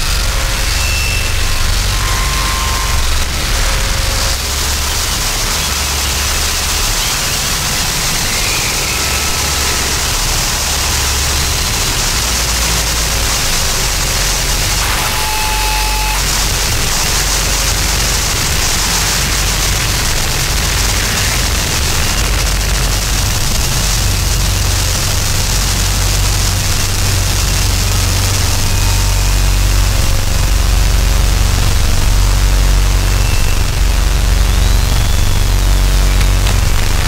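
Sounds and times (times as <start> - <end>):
harsh noise hiss and static: 0.0 - 37.0
low rumble: 16.3 - 37.0.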